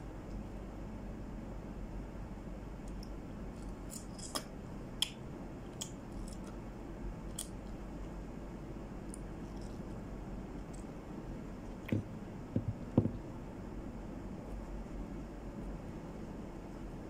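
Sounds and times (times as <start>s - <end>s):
steady low hum: 0.0s - 17.0s
eating clicks and smacks: 3.9s - 6.6s.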